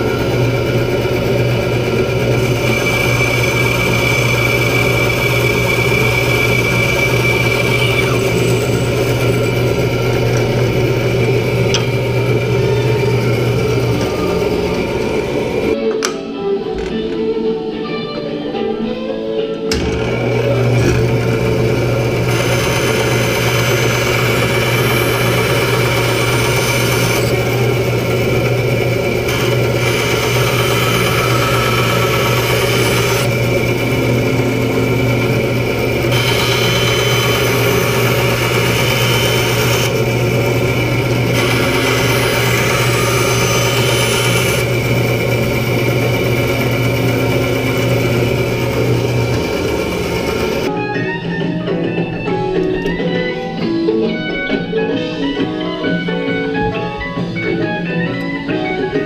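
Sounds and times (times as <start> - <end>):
bandsaw cutting wood: 0.0 - 15.8, 19.7 - 50.7.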